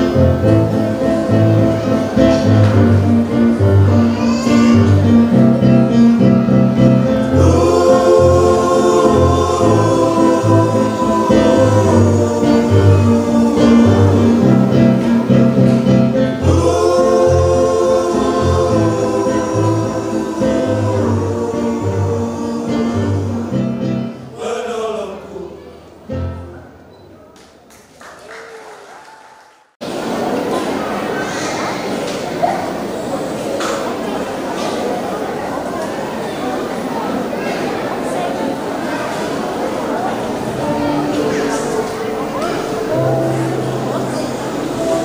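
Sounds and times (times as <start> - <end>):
choir singing gospel: 0.0 - 25.5, 38.6 - 45.0.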